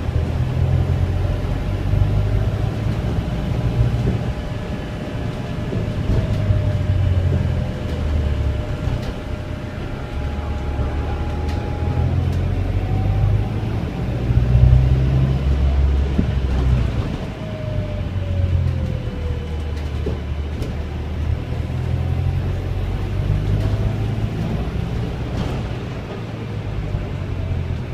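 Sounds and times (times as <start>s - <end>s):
bus engine and road rumble: 0.0s - 27.9s
faint whine sliding in pitch: 5.6s - 15.8s.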